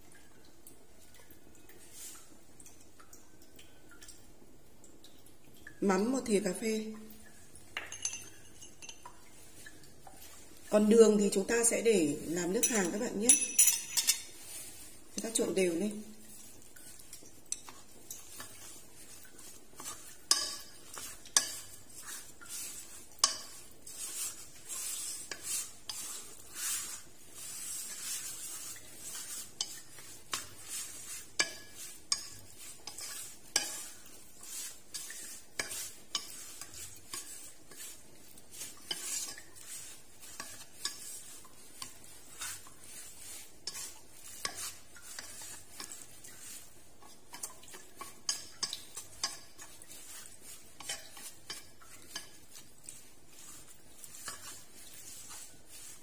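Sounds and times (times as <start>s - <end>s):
spoon stirring meat in pot: 7.6s - 56.0s.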